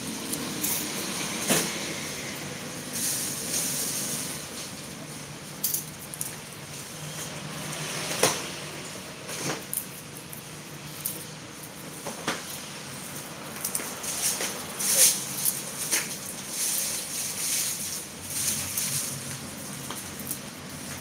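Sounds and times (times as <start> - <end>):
steady hiss: 0.0 - 5.6
rustling of dry skins: 9.3 - 21.0.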